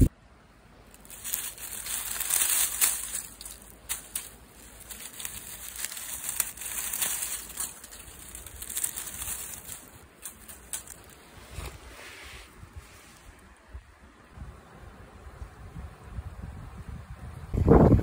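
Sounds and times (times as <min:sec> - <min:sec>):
dry leaves crunching under hand: 0:00.9 - 0:12.3.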